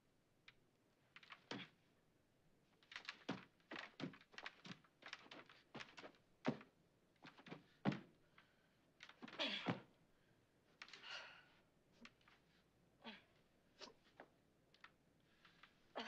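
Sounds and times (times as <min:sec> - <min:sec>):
rustling of straining against ropes: 0:01.1 - 0:01.9, 0:02.7 - 0:09.9.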